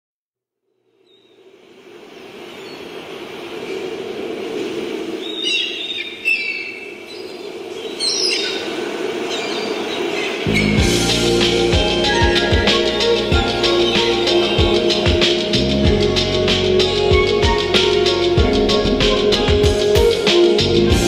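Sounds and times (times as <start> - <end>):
rushing ambient noise: 0.9 - 21.0
bird-like chirps and whistles: 5.2 - 11.1
music with bass line: 10.5 - 21.0.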